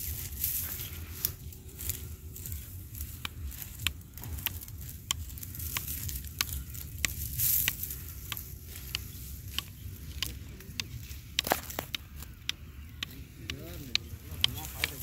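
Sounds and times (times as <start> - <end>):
sickle cutting dry wheat: 0.0 - 15.0.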